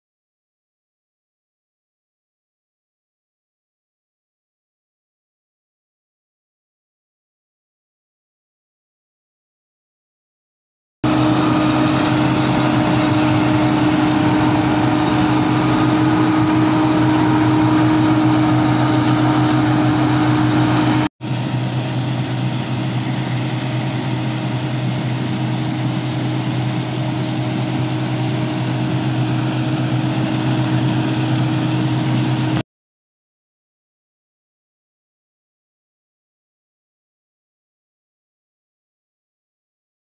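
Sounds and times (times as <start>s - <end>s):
combine harvester running: 11.0s - 32.6s.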